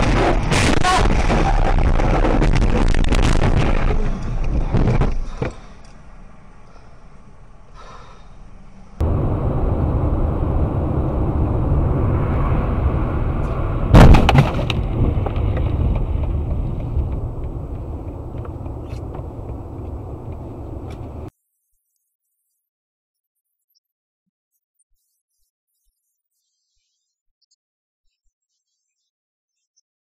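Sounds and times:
loud bang and rattle: 0:00.0 - 0:05.4, 0:09.0 - 0:21.3
road and wind noise in car: 0:03.5 - 0:21.3.

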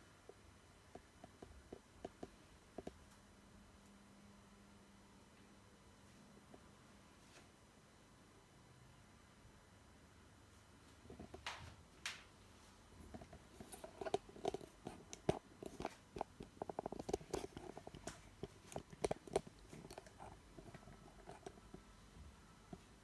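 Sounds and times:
microphone handling clicks and rubbing: 0:13.0 - 0:21.8.

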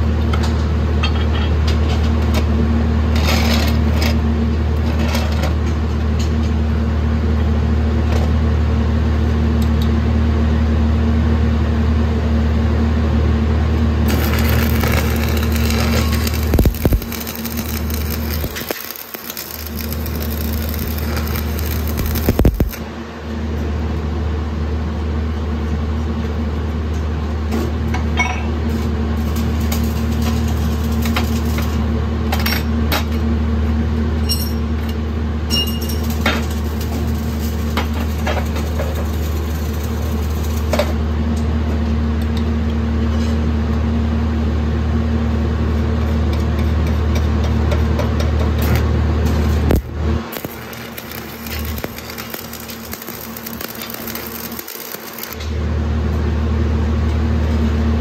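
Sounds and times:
steady low hum: 0:13.4 - 0:25.3, 0:49.4 - 0:56.9
welding arc crackling and hissing: 0:14.1 - 0:22.9, 0:29.2 - 0:31.8, 0:36.0 - 0:41.0, 0:49.3 - 0:55.4.

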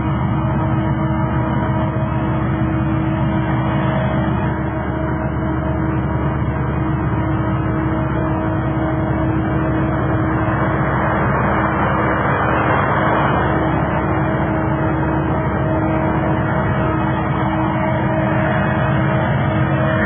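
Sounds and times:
steady hum: 0:00.0 - 0:20.0
car driving past: 0:09.8 - 0:20.0.

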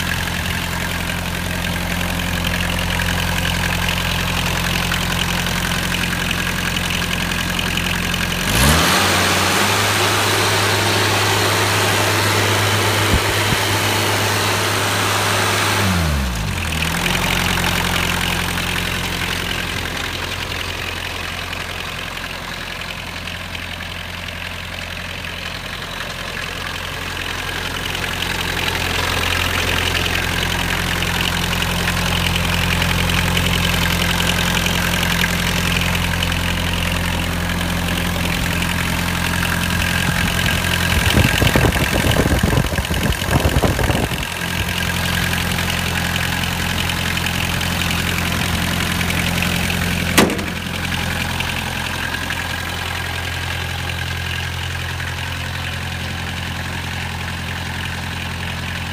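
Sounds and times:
mower engine idling: 0:00.0 - 0:58.9
rough rattling: 0:48.2 - 0:51.9.

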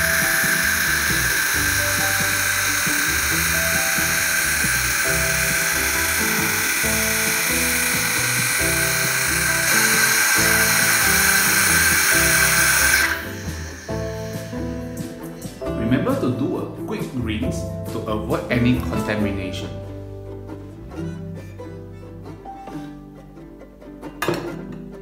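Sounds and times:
milk frother hissing: 0:00.0 - 0:15.6
background music: 0:00.0 - 0:25.0.

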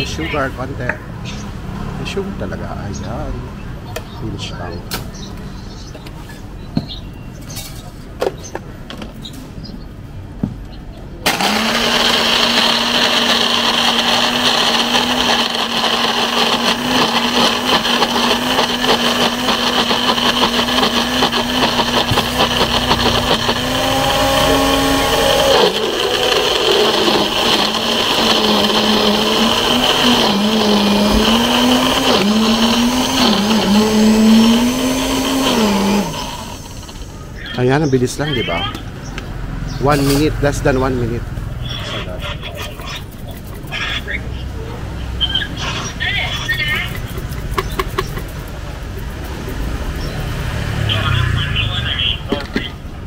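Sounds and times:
blender crushing ice: 0:11.3 - 0:37.1.

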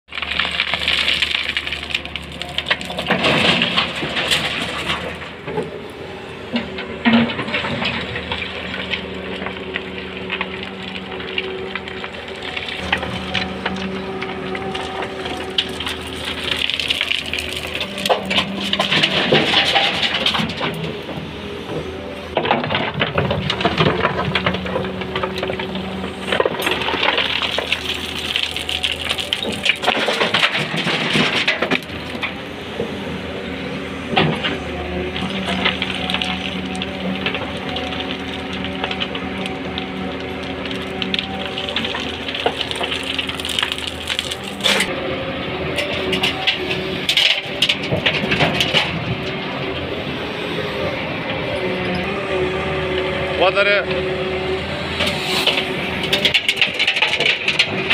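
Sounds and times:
stones and dirt rattling down: 0:00.1 - 0:05.7, 0:06.6 - 0:21.1, 0:22.3 - 0:32.4, 0:34.2 - 0:44.9, 0:45.8 - 0:49.3, 0:55.4 - 0:57.9
diesel engine droning: 0:00.1 - 0:57.9
bucket scraping gravelly soil: 0:06.6 - 0:20.8, 0:23.0 - 0:32.0, 0:34.6 - 0:44.9.

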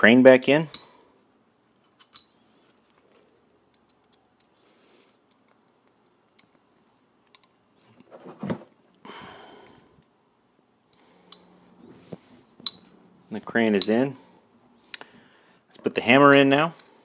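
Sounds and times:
metallic clicks of revolver parts: 0:00.4 - 0:01.0, 0:01.8 - 0:02.5, 0:03.6 - 0:08.0, 0:10.9 - 0:11.6, 0:12.6 - 0:13.0, 0:13.7 - 0:14.1.

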